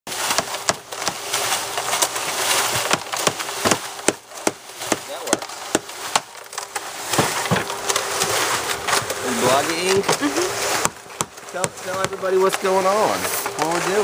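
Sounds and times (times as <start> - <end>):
faint motor hum: 0.1 - 14.0
concrete clacking in mixer drum: 8.7 - 14.0.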